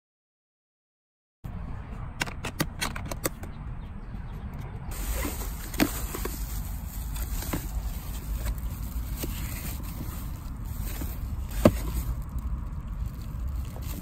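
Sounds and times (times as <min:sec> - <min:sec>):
steady low rumble: 0:03.5 - 0:14.0
foil liner rustling: 0:04.9 - 0:14.0.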